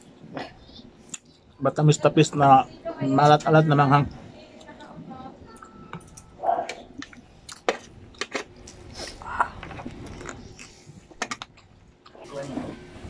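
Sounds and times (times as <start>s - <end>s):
man chewing and sucking: 7.0s - 12.2s.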